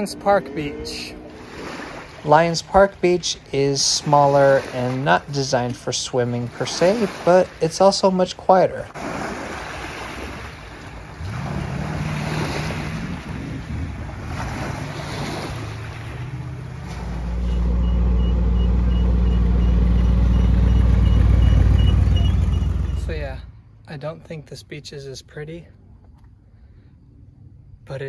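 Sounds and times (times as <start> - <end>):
faint engine hum: 0.0 - 3.6, 10.2 - 28.0
waves washing onto pebble beach: 3.8 - 8.0
loud low engine rumble: 10.8 - 23.7.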